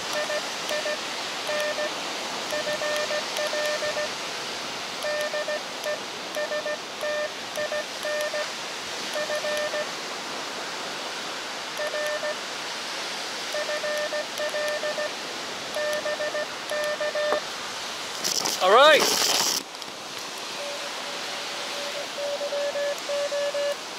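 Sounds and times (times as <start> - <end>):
steady hiss: 0.0 - 23.9
morse code tone: 0.1 - 1.9, 2.5 - 4.1, 5.0 - 8.5, 9.1 - 9.9, 11.8 - 12.4, 13.5 - 15.2, 15.8 - 17.4, 20.6 - 23.8.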